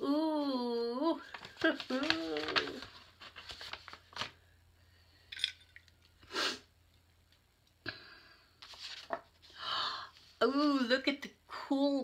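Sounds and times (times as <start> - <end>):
paper rustling: 1.2 - 4.5, 8.6 - 9.6.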